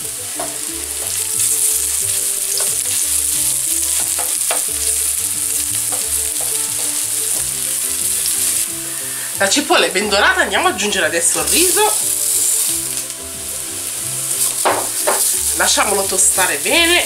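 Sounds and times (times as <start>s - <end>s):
onion sizzling in oil: 0.0s - 17.0s.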